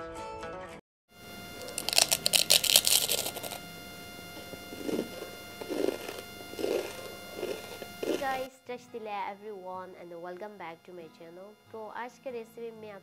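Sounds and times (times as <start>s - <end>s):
crunching bite into crispy cookie: 1.5s - 3.6s, 4.8s - 8.3s.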